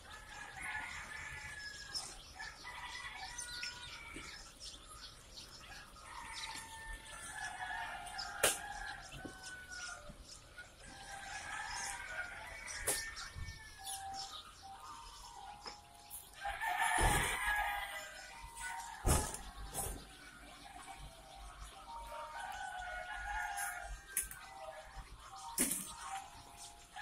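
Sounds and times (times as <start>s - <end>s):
chicks peeping: 0.0s - 27.0s
plastic crates knocking: 19.0s - 20.1s.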